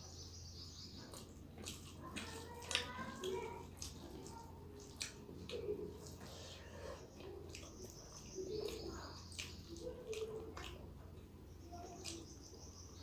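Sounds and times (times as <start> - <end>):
wet chewing and smacking: 0.8 - 13.0
bird calls: 5.5 - 10.8.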